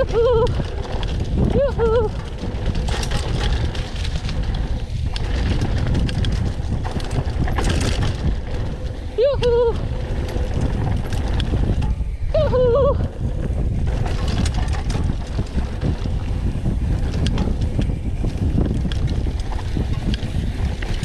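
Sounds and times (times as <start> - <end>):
bike rattling and clicking: 0.0 - 21.0
bike rolling on dirt trail: 0.0 - 21.0
wind buffeting microphone: 0.0 - 21.0
person whooping: 12.3 - 13.1.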